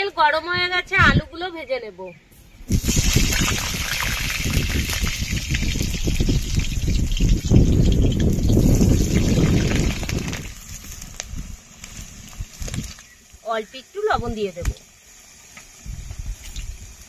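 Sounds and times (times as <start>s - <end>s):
crackling oil spatters: 2.7s - 13.4s
potatoes sizzling in hot oil: 2.7s - 17.0s.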